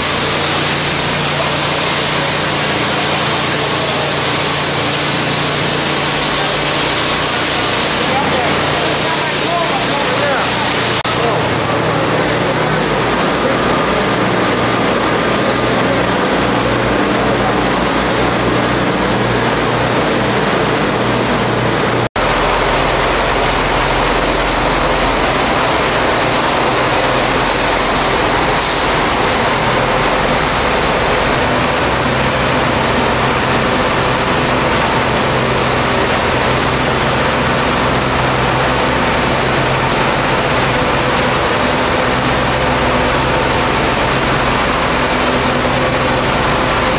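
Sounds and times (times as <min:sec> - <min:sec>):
high-pressure water spray: 0:00.0 - 0:11.4, 0:22.2 - 0:46.9
engine running: 0:00.0 - 0:46.9.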